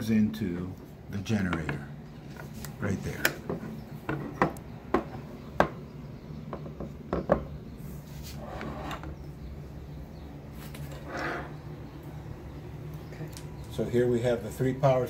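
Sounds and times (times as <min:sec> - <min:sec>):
rubbing on tabletop: 0:07.8 - 0:08.9.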